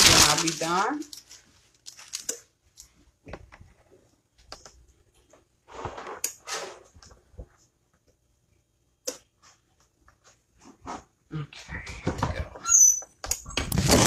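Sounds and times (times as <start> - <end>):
fabric rustling and sliding: 5.6 - 7.0.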